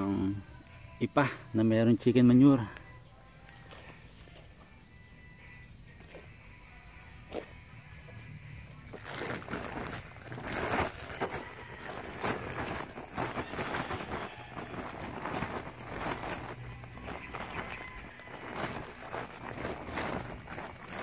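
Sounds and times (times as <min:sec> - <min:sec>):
plastic sack rustling: 0:08.9 - 0:21.0.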